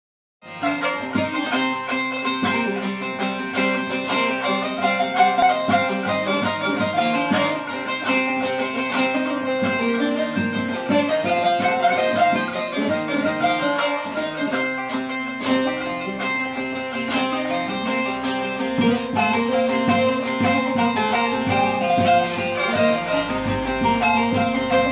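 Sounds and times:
saz strummed folk melody: 0.4 - 24.9.

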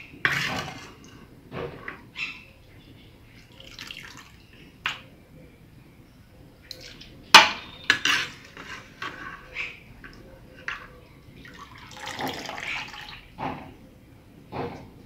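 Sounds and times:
tripe splashing and dripping: 3.4 - 4.6.

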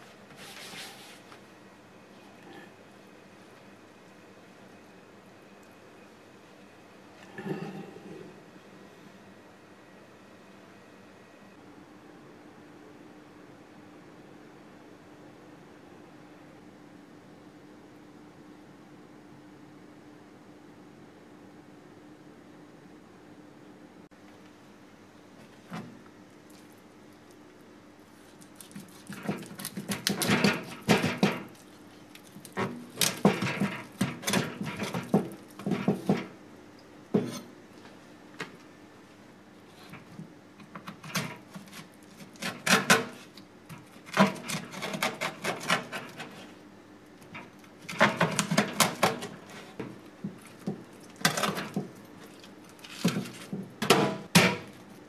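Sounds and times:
knife scraping fish scales: 44.2 - 46.5.

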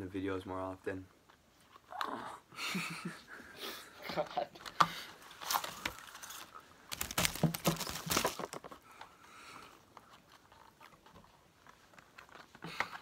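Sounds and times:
faint wrapper rustling: 5.2 - 12.6
foil wrapper crackling: 5.4 - 8.7.

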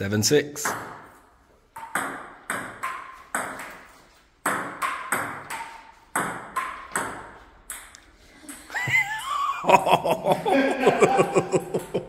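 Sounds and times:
table tennis ball pinging: 0.6 - 9.0, 11.3 - 12.0.

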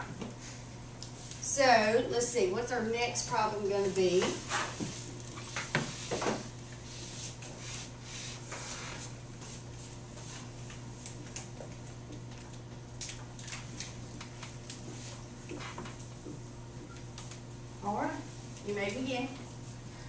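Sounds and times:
papers and desks rustling: 3.8 - 17.5.

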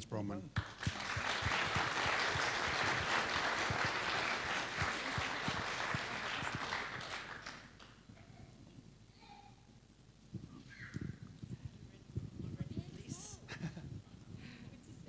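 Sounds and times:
audience applauding: 0.6 - 8.0.

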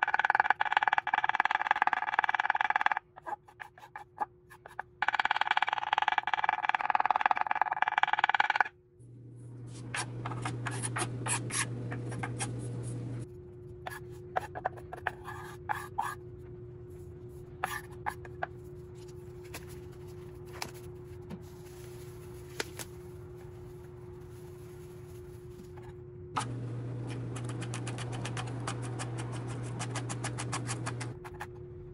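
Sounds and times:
steady hum: 8.7 - 31.9.

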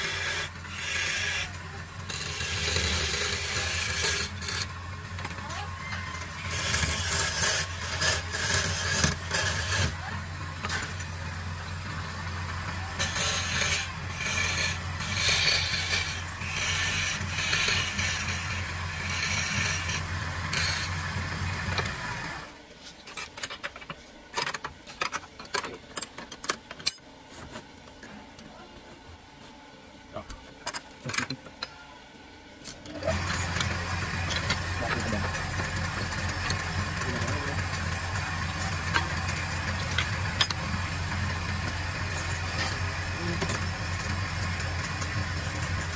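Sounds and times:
chisel scraping spinning wood: 0.0 - 5.5, 6.1 - 22.6, 33.0 - 45.9
lathe motor humming: 0.0 - 5.5, 6.2 - 22.6, 32.9 - 45.9.

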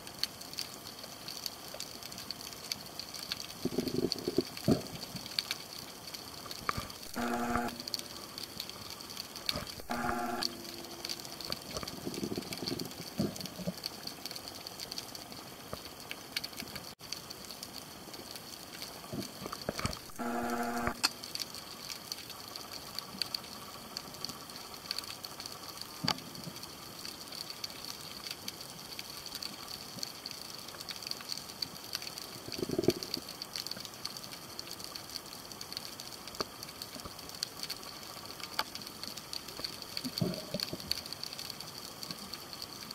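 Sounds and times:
small clicks and crackles: 0.0 - 42.9
short buzzy tones: 7.1 - 8.0, 9.6 - 11.4, 20.1 - 21.1.

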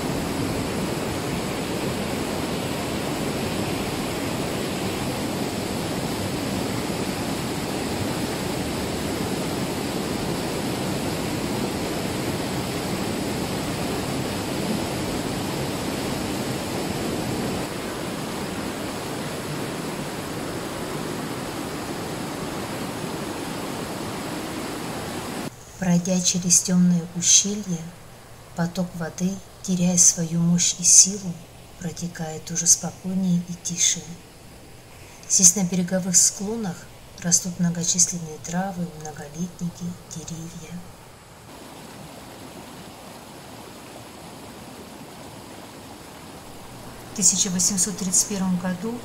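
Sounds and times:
stream rushing over boulders: 0.0 - 25.5, 40.9 - 48.3.

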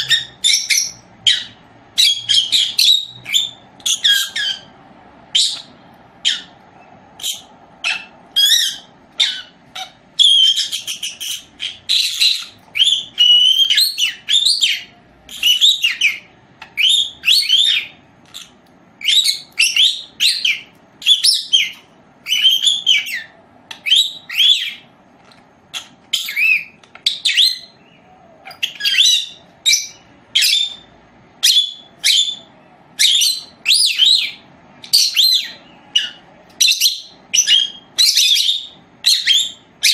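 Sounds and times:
parrot chirping: 0.0 - 39.9.

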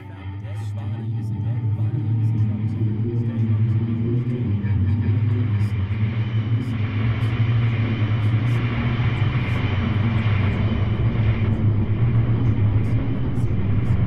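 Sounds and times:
low engine rumble: 0.0 - 14.0.

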